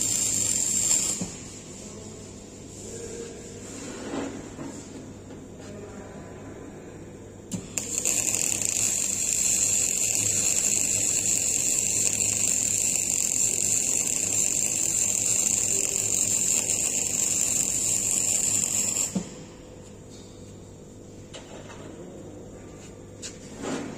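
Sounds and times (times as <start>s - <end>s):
welding arc sizzling hiss: 0.0s - 4.4s, 7.5s - 19.4s.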